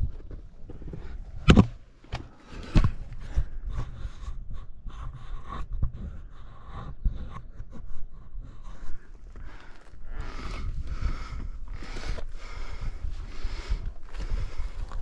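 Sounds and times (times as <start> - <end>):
boots scraping on rock: 9.0 - 15.0.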